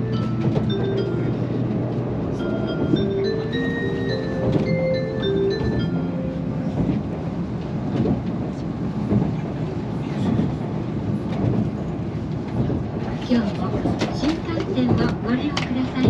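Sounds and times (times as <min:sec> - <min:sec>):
train running rumble: 0:00.0 - 0:16.0.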